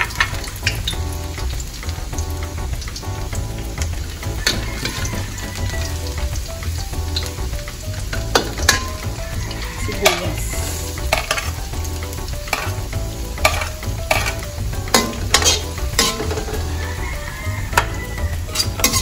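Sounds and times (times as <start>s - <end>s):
onion and garlic sizzling in oil: 0.0s - 19.0s
metal spoon scraping a wok: 10.1s - 11.6s, 12.5s - 12.8s, 13.4s - 16.7s, 17.8s - 19.0s.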